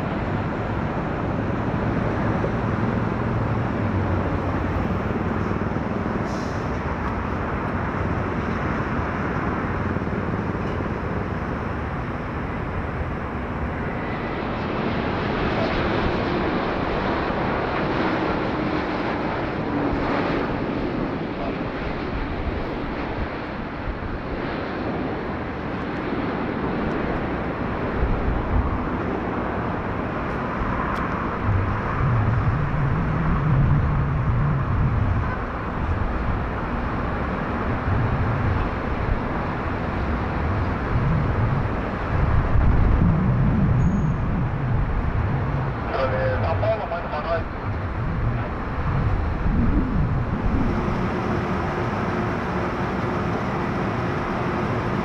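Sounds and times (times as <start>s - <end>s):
jet engines rumbling: 0.0s - 55.0s.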